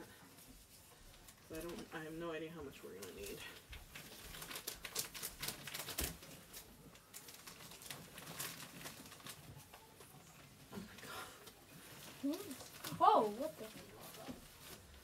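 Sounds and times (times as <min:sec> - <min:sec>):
paper bedding crackling rustles: 0:00.2 - 0:15.0.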